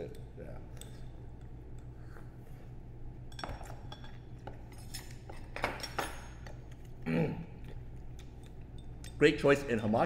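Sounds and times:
low room hum: 0.0s - 10.0s
dishes and utensils clinking: 3.3s - 6.9s.

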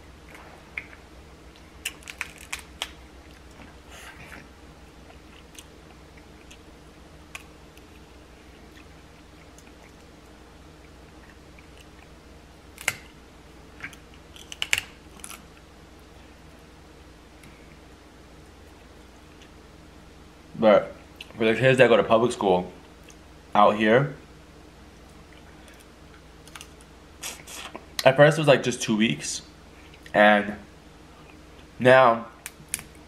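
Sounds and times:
faint steady hum: 0.0s - 33.0s
crab shells cracking: 0.7s - 3.6s, 12.7s - 13.1s, 13.8s - 15.6s, 25.8s - 26.9s
chewing: 0.7s - 6.7s, 7.3s - 10.1s.

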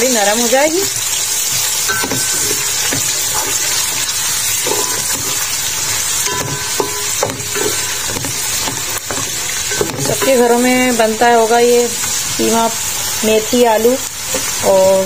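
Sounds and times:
onions sizzling in hot oil: 0.0s - 15.0s
wooden spoon stirring: 1.0s - 12.6s.

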